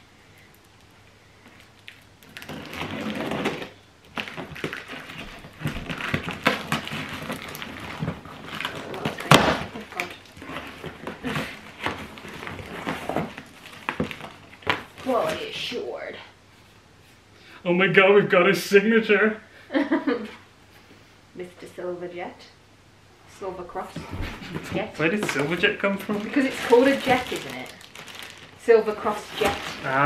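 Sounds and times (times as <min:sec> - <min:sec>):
tape tearing: 0:01.8 - 0:15.6, 0:24.4 - 0:30.0
cardboard flaps scraping and knocking: 0:02.4 - 0:15.5, 0:24.0 - 0:27.7, 0:29.0 - 0:30.0.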